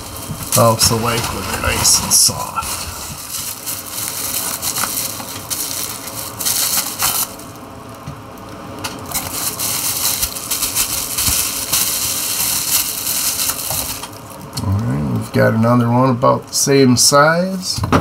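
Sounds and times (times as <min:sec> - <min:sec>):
packaging crinkling and rustling: 0:00.0 - 0:14.6.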